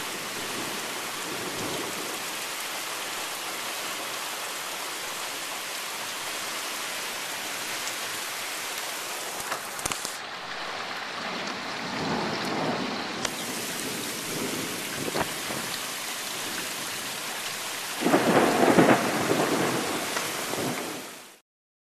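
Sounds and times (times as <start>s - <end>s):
heavy rain pouring: 0.0s - 21.4s
thunder: 11.8s - 15.8s, 18.0s - 21.1s.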